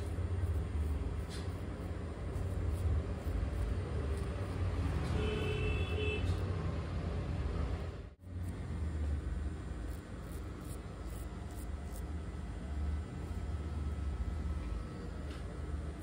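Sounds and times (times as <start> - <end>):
razor scraping stubble: 0.0 - 5.5, 9.8 - 12.1.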